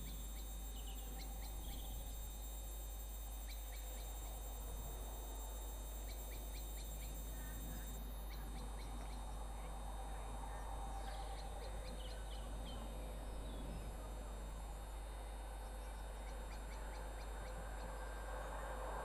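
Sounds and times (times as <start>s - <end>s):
small birds chirping: 0.0s - 2.8s.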